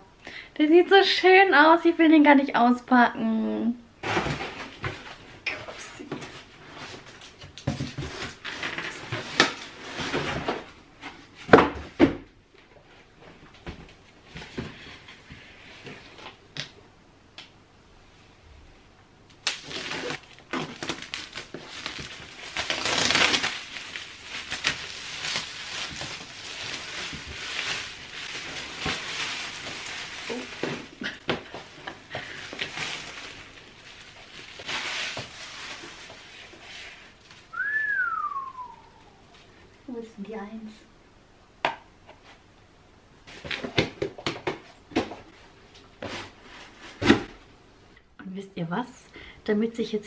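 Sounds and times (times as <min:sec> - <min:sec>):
plastic wrapping crinkling: 0:19.4 - 0:37.8.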